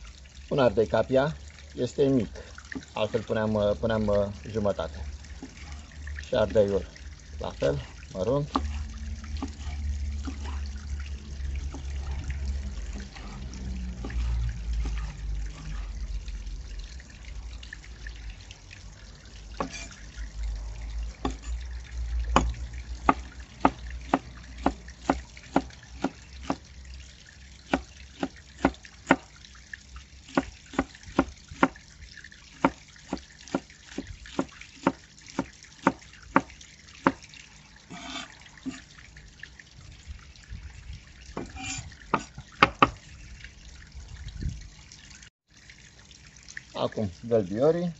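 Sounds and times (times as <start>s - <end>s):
water trickling: 0.0s - 47.9s
cleaver chopping on wooden board: 23.1s - 26.6s.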